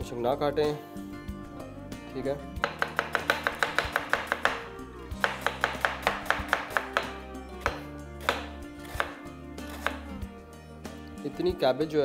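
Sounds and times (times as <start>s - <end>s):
background music: 0.0s - 12.0s
knife slicing cabbage: 5.2s - 10.1s.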